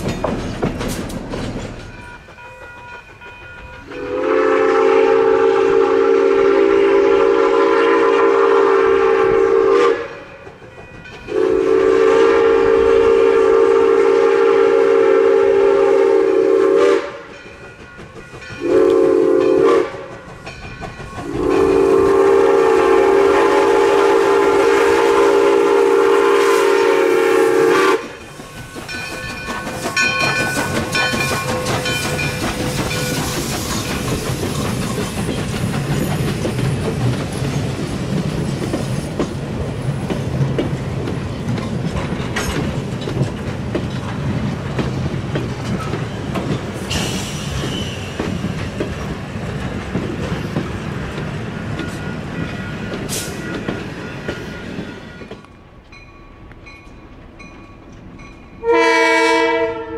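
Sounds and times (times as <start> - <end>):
train wheels clicking over rail joints: 0.0 - 5.4, 10.0 - 13.3, 16.4 - 58.6
steam locomotive whistle: 3.8 - 10.4, 11.3 - 17.4, 18.6 - 20.2, 21.2 - 34.8, 46.8 - 48.4, 51.8 - 55.4, 58.6 - 59.9.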